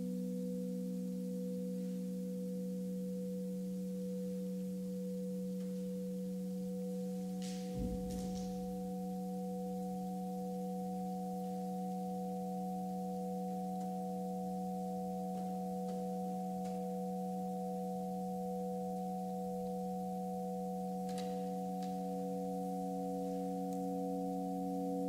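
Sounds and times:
electronic drone of steady tones: 0:00.0 - 0:25.0.

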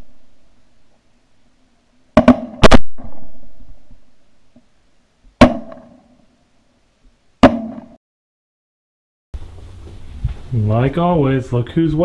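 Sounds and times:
shotgun blasts with echo: 0:02.2 - 0:03.8, 0:05.4 - 0:06.0, 0:07.4 - 0:08.0.

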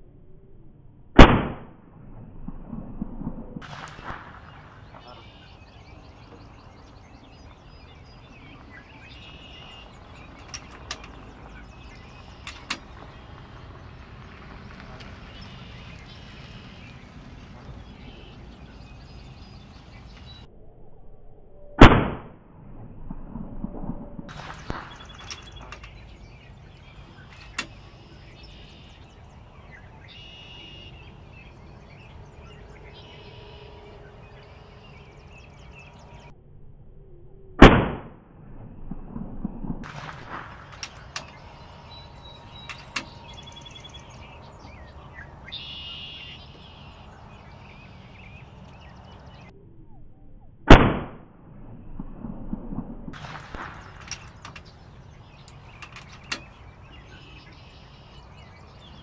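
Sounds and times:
air rifle shots: 0:01.2 - 0:01.7, 0:03.6 - 0:05.4, 0:21.8 - 0:22.3, 0:24.3 - 0:26.4, 0:37.6 - 0:38.2, 0:39.8 - 0:43.4, 0:50.7 - 0:51.3, 0:53.1 - 0:56.6
birds chirping: 0:03.6 - 0:20.5, 0:24.3 - 0:36.3, 0:39.8 - 0:49.6, 0:53.2 - 0:59.0
small clicks: 0:10.0 - 0:16.1, 0:55.4 - 0:56.6.

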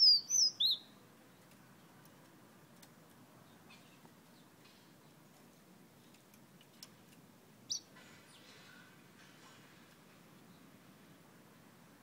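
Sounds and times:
songbird chirping and twittering: 0:00.0 - 0:02.1, 0:03.4 - 0:08.8, 0:10.4 - 0:10.8.

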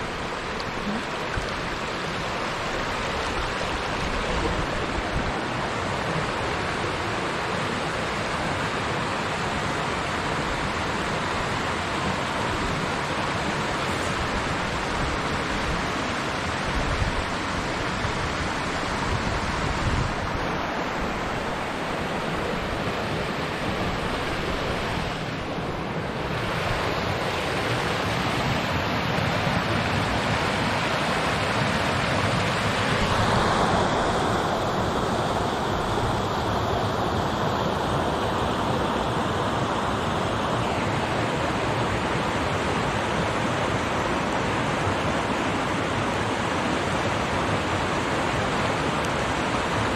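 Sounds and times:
river rushing over rapids: 0:00.0 - 0:49.9.

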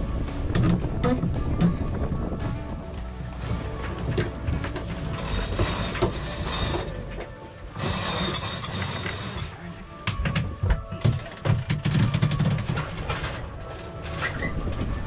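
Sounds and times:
winch ratcheting clicks: 0:04.2 - 0:09.5.

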